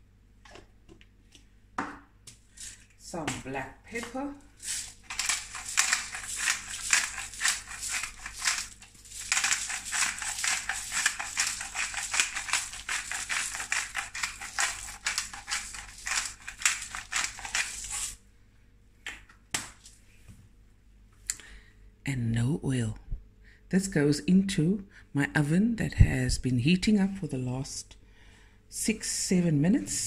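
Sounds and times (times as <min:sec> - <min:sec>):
pepper grinder grinding: 0:04.5 - 0:18.2.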